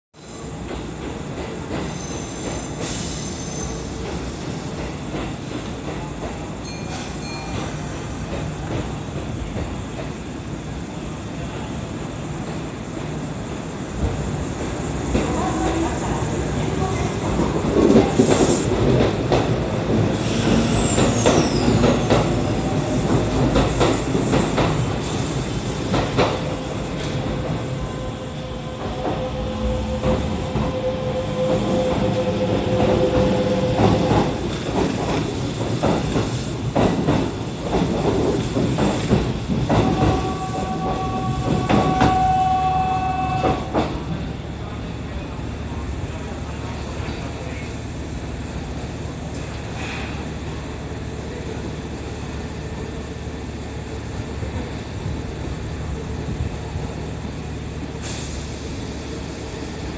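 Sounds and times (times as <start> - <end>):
high wheel squeal: 1.9 - 3.9, 20.2 - 22.4
train rumble: 3.9 - 59.9.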